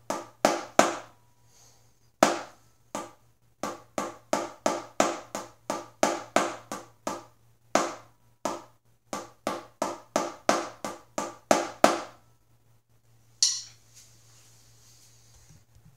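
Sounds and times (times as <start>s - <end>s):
drumsticks striking practice pad: 13.4s - 13.8s.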